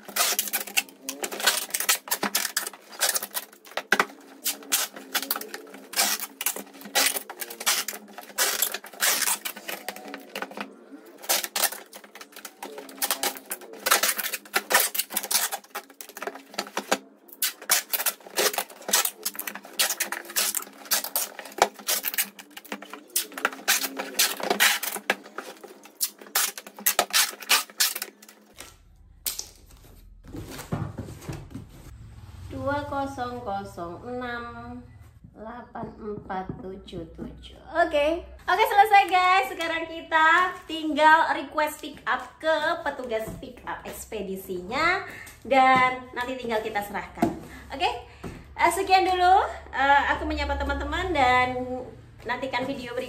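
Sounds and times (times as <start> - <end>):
cardboard clicking and rustling: 0.0 - 28.6.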